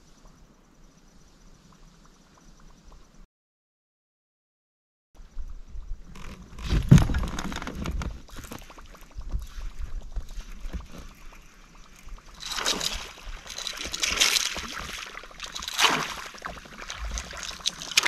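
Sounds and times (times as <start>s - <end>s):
fish thrashing water splashing: 12.2s - 18.0s.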